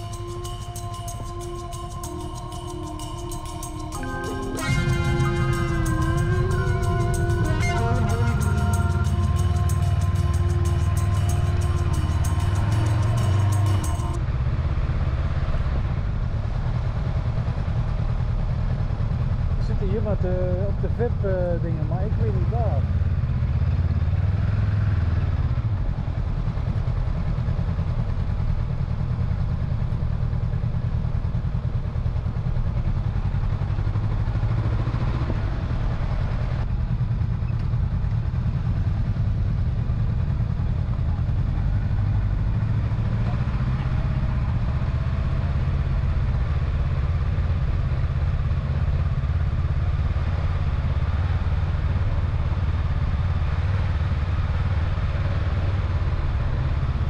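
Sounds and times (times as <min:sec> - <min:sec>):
motorcycle engine rumbling: 0:00.0 - 0:57.0.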